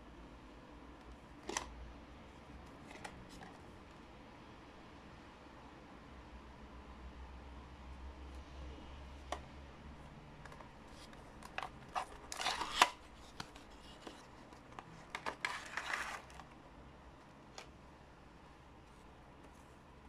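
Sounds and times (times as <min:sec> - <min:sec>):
cardboard and paper rustling: 0:10.4 - 0:16.6.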